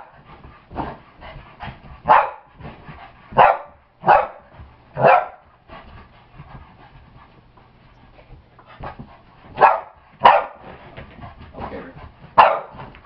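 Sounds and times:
dog panting: 0.0 - 13.0
dog barking sharply: 9.6 - 10.6, 12.4 - 12.7.

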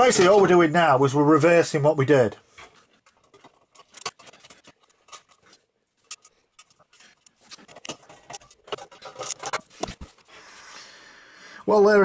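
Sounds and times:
metal cover knocking and scraping: 7.7 - 10.1.

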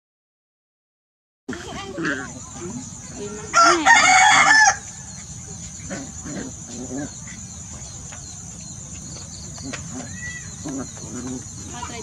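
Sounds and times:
high insect trill: 1.5 - 12.0
rooster crowing: 3.5 - 4.9.

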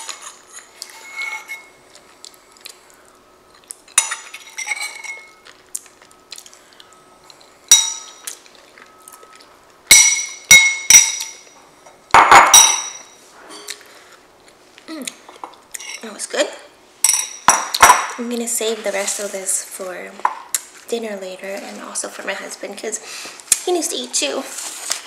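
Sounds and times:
spoon clinking on ceramic bowl: 9.9 - 11.5, 12.2 - 13.1.

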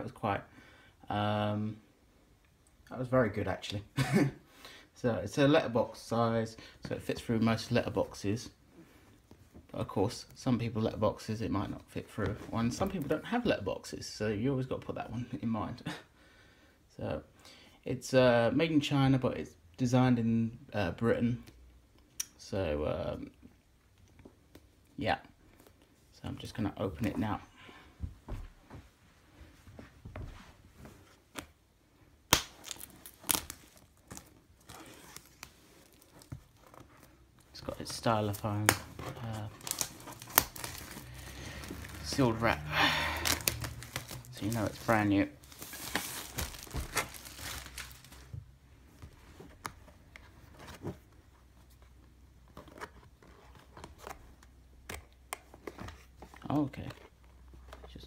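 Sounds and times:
plastic shrink wrap crinkling: 32.3 - 48.4
cardboard box tearing: 39.5 - 42.2, 43.2 - 48.2.

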